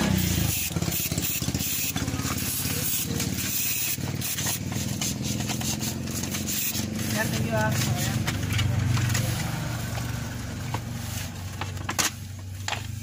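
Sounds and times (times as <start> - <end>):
aerosol spray can hissing: 0.0 - 8.3
engine running: 0.0 - 13.0.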